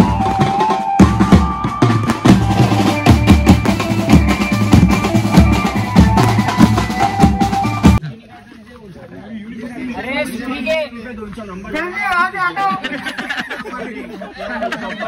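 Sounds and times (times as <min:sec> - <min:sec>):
fast drumming: 0:00.0 - 0:08.0
electric banjo melody: 0:02.3 - 0:08.0.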